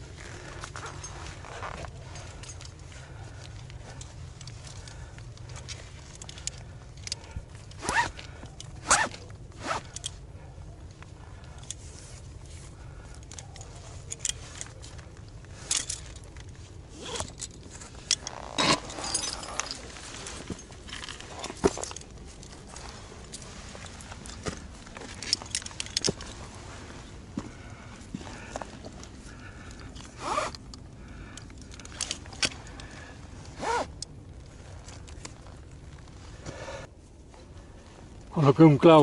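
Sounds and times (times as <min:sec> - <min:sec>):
handling rasps: 0:00.2 - 0:10.2.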